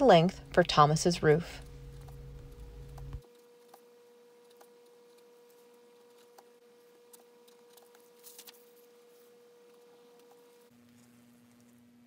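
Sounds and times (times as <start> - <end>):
low hum: 0.0 - 3.3.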